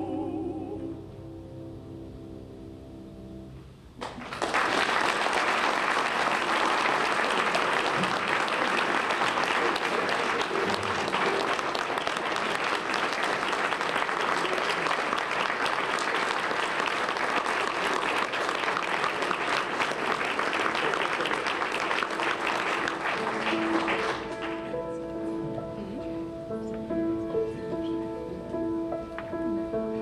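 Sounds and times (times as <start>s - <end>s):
audience applauding: 4.0s - 25.1s.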